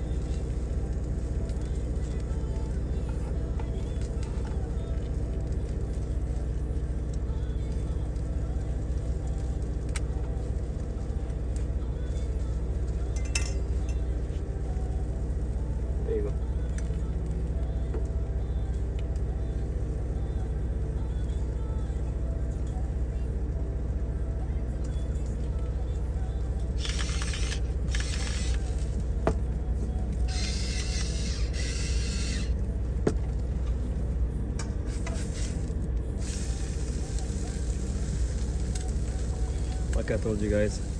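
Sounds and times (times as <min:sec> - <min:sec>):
electric grinder grinding: 0:26.8 - 0:29.0, 0:30.3 - 0:32.6.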